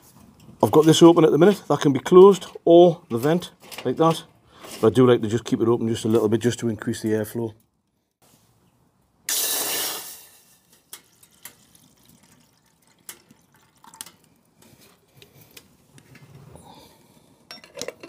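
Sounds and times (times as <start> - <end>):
water pouring into kettle: 10.6 - 14.6.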